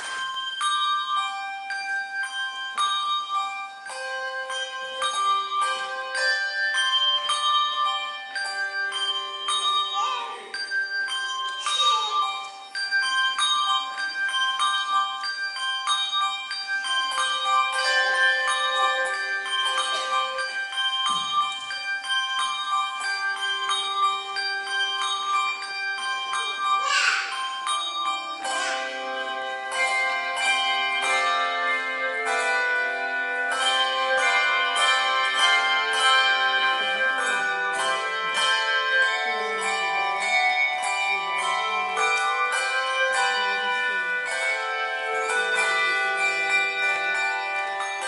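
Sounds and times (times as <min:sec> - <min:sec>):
handbells ringing a tune: 0:00.0 - 0:48.0.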